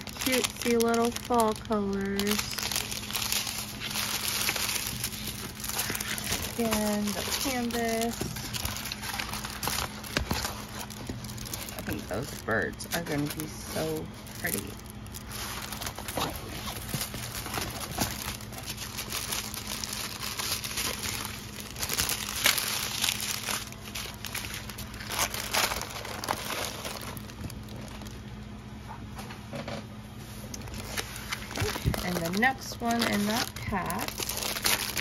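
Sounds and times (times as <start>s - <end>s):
plastic packaging crinkling: 0.0s - 28.8s, 30.4s - 35.0s.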